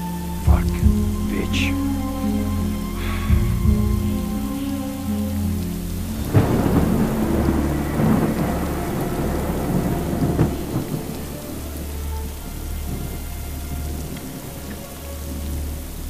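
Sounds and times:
rain falling: 0.0 - 16.0
thunder rumbling and cracking: 2.5 - 13.2.

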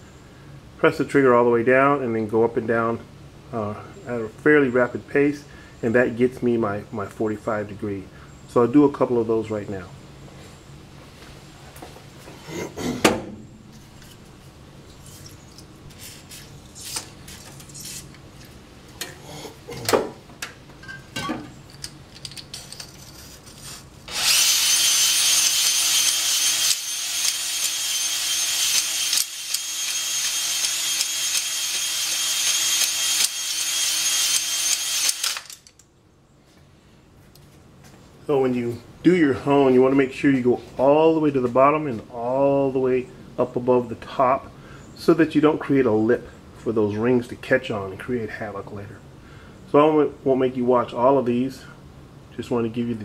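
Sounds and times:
electric drill whining: 24.1 - 35.7.

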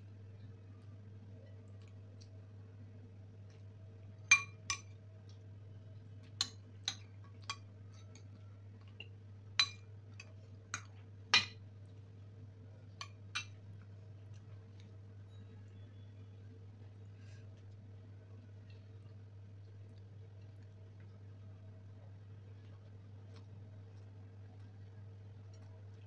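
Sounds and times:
faint low hum: 0.0 - 26.0
spoon clinking on ceramic plates: 4.3 - 5.0, 9.6 - 11.6, 13.0 - 13.6.

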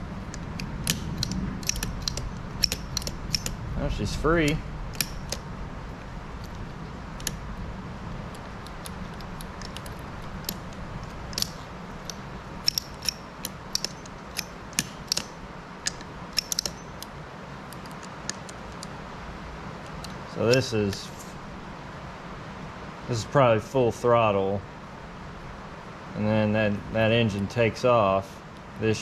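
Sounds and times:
light metallic clicks: 0.0 - 6.6, 8.3 - 17.1, 17.7 - 19.0, 19.8 - 21.3
low steady hum: 0.0 - 29.0.

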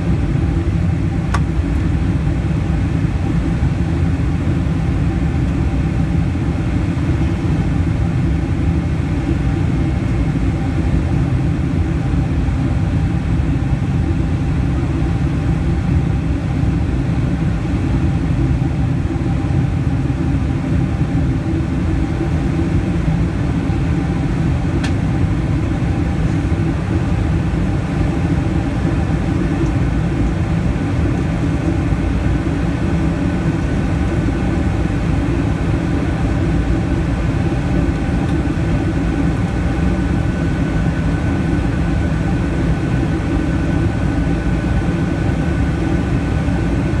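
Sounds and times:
faint steady whine: 0.0 - 47.0
jet engine and airflow rumble: 0.0 - 47.0.

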